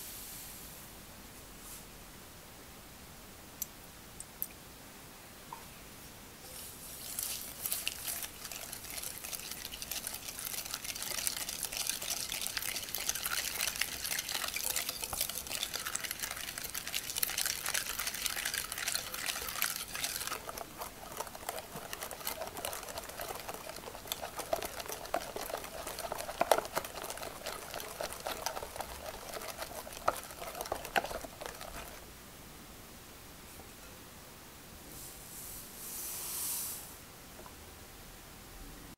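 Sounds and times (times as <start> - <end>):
whisk beating in a glass bowl: 7.1 - 32.1.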